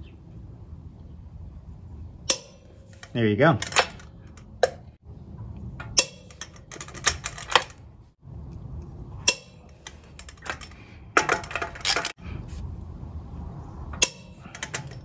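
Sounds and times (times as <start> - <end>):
socket clinking on nuts: 2.3 - 4.9, 5.8 - 7.8, 9.2 - 12.2, 14.0 - 15.0.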